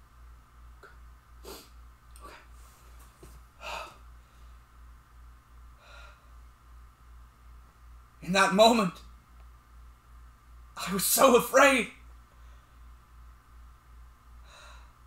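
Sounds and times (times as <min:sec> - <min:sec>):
man breathing faintly: 0:01.4 - 0:04.8, 0:05.7 - 0:06.5, 0:14.4 - 0:15.0.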